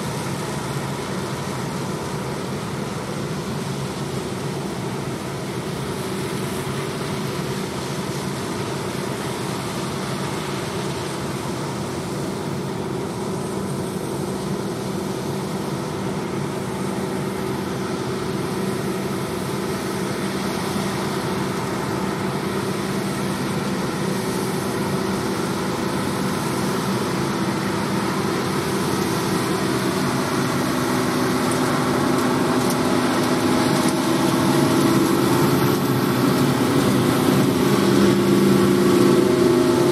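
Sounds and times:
tractor diesel engines: 0.0 - 39.9
peanut pickers running: 17.1 - 39.9.

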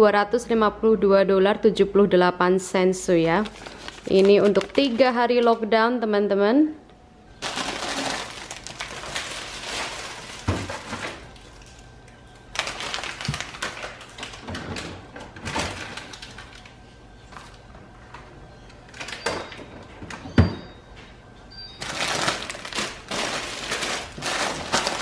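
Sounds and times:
plastic packaging crinkling: 3.1 - 5.7, 7.4 - 16.8, 21.8 - 25.0
items being set down: 9.8 - 11.3.

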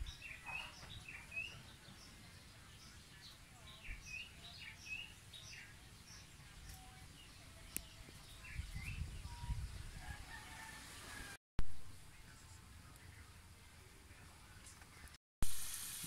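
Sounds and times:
birds chirping: 0.0 - 11.3.

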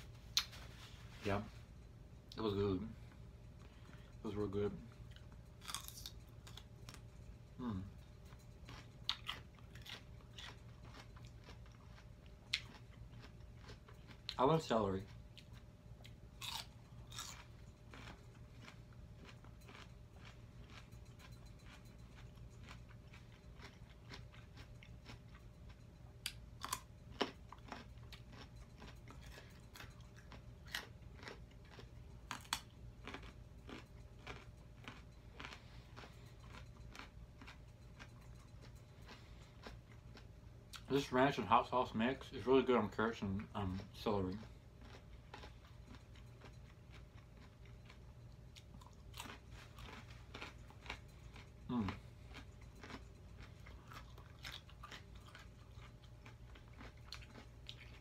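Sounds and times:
crunching a raw carrot: 8.6 - 15.6, 16.4 - 22.0, 26.2 - 41.1, 43.2 - 58.0.

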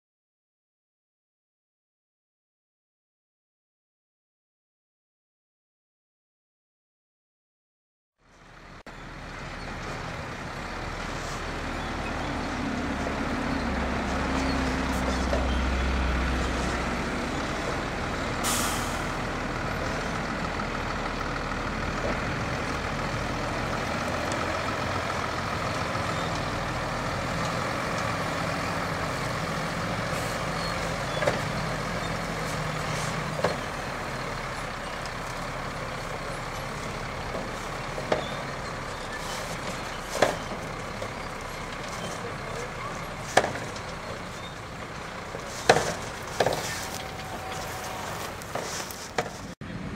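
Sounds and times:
lorry diesel engine running: 8.2 - 49.9
air brake hiss: 18.4 - 19.2
sharp knocks: 45.6 - 47.8.

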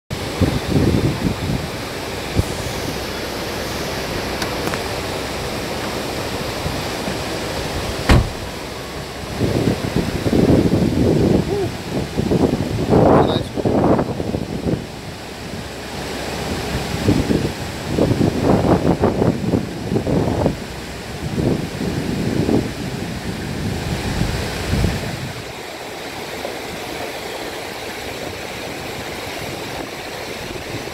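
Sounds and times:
river water rushing over rocks: 0.1 - 30.9
wind buffeting microphone: 0.1 - 30.9
low rumble: 7.8 - 9.6
sharp knock: 8.1 - 8.5.

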